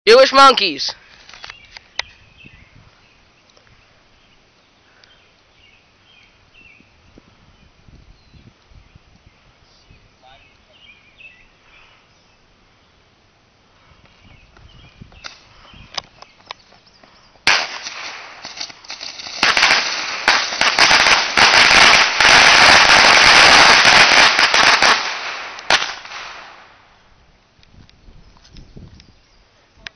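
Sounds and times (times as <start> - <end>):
bottle rockets hissing and popping: 17.4 - 26.6.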